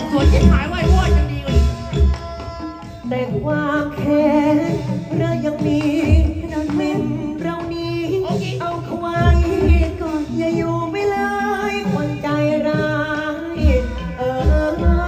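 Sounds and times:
heavy low drum beat: 0.0 - 10.8
band accompaniment: 0.0 - 15.0.

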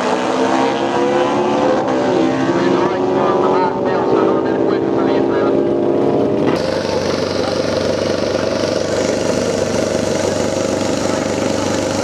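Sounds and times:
motorcycle engines droning: 0.0 - 12.0.

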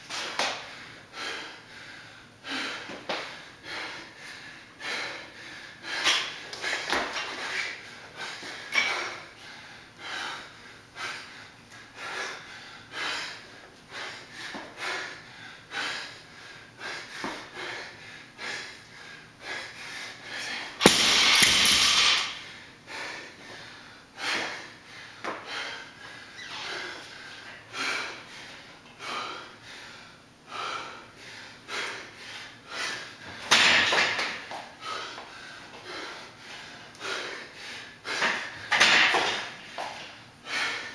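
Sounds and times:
person panting hard: 0.2 - 40.9
barbell crashing on floor: 20.8 - 22.4, 38.7 - 39.5.

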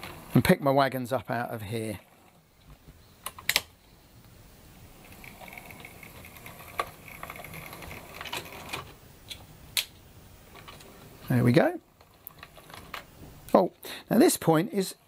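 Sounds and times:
sharp clicks: 3.2 - 4.4
model train motor whirring: 4.9 - 9.0
wheels clicking over rail joints: 5.0 - 9.0, 10.5 - 13.1.

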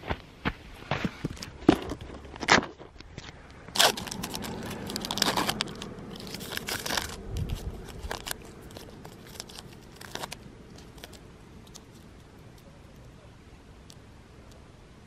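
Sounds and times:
paper wrapper crinkling and tearing: 1.4 - 12.7.

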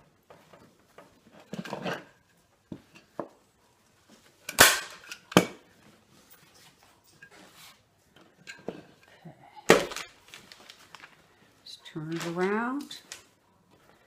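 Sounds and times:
fabric handling: 9.7 - 14.0.

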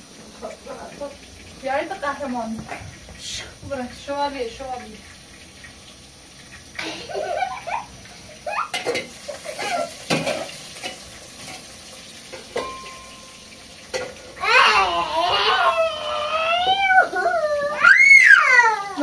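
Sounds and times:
small children chattering and laughing: 6.8 - 10.0, 14.4 - 19.0.

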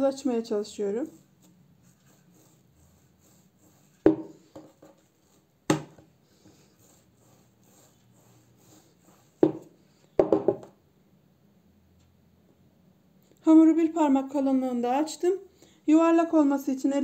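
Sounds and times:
rolling pin rolling dough: 0.6 - 10.6
rolling pin knocking on wood: 4.0 - 5.0, 5.7 - 6.0, 9.4 - 10.7.

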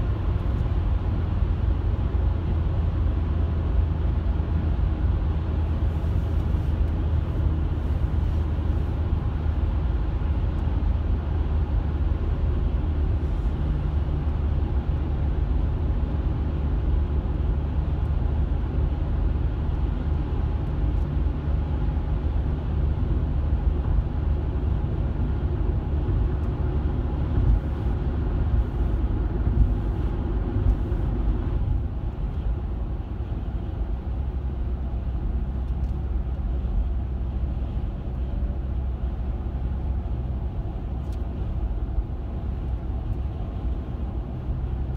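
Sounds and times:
car cabin road rumble: 0.0 - 44.9.

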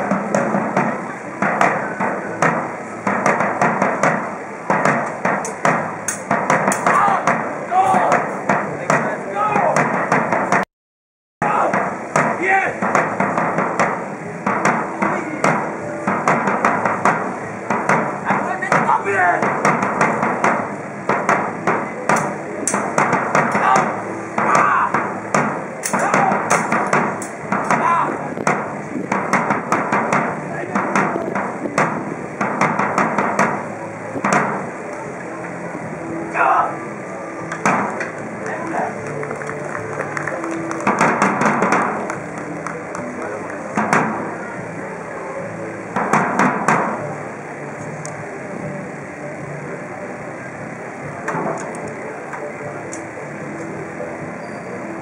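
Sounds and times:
crowd murmuring: 0.0 - 10.6, 11.4 - 55.0
swords clashing: 25.8 - 28.0.

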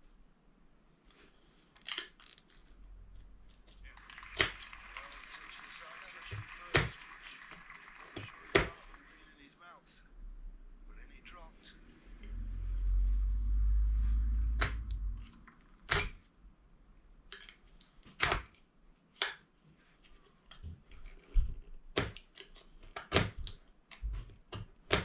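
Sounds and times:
low handling rumble: 12.0 - 15.3.

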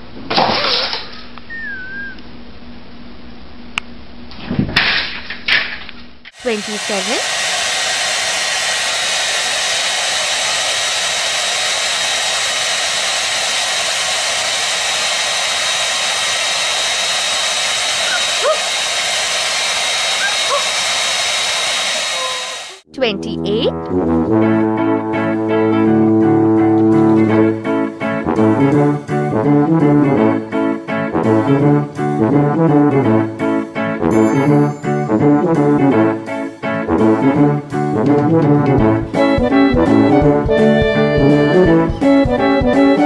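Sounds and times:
hair dryer blowing: 6.3 - 22.9, 39.0 - 43.0.

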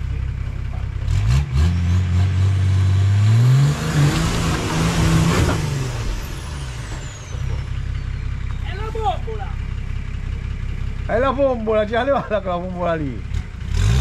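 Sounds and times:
off-road vehicle engine revving: 0.0 - 14.0.

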